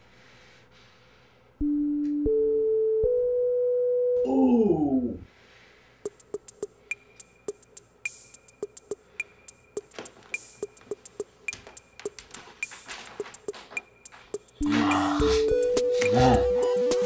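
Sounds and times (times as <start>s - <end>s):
drum machine clicking beat: 6.0s - 17.0s.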